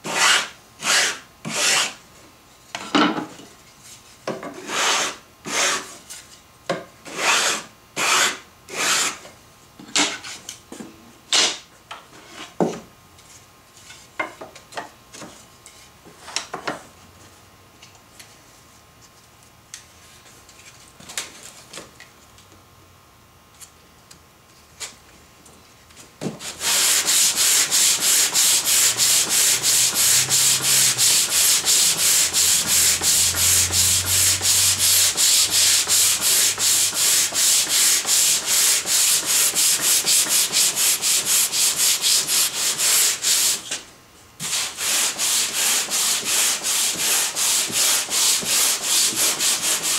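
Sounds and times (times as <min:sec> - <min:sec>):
sandpaper rasping on wood: 0:00.0 - 0:02.0, 0:04.6 - 0:05.9, 0:07.1 - 0:09.2, 0:26.4 - 0:43.6, 0:44.4 - 0:49.9.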